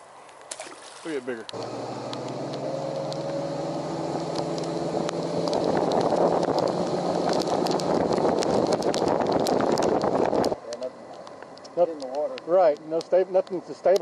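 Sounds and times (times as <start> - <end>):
rushing wind and water: 0.0 - 11.9
raindrops ticking: 1.4 - 14.0
outboard motor running: 1.5 - 10.8.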